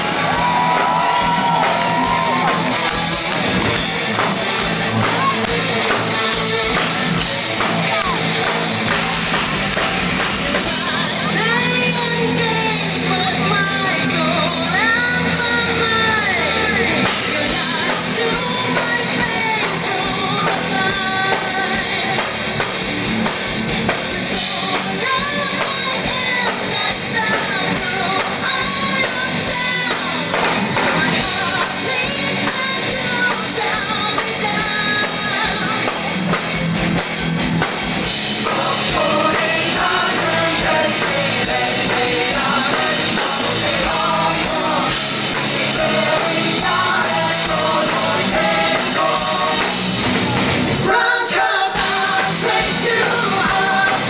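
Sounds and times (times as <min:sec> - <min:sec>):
drums: 0:00.0 - 0:54.0
electric guitars: 0:00.0 - 0:54.0
woman singing lead: 0:10.4 - 0:22.5, 0:24.2 - 0:36.4, 0:38.4 - 0:54.0.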